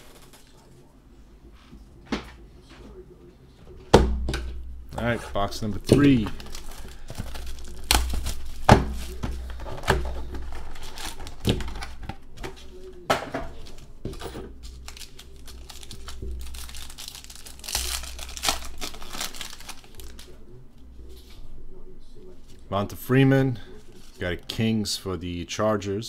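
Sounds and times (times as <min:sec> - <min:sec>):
foil pack tearing: 0:05.0 - 0:12.1, 0:14.6 - 0:20.4
plastic wrappers crinkling: 0:05.0 - 0:20.4, 0:23.6 - 0:24.4.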